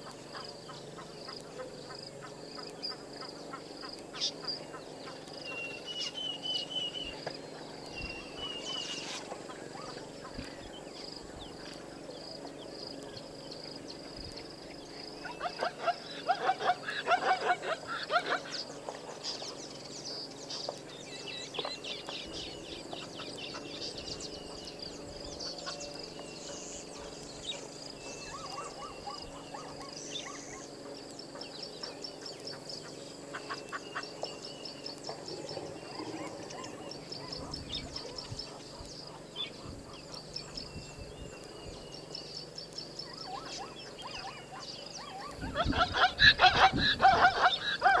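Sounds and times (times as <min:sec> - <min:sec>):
birds chirping and trilling: 0:00.0 - 0:48.0
rapid harsh bird calls: 0:14.8 - 0:35.0, 0:35.8 - 0:48.0.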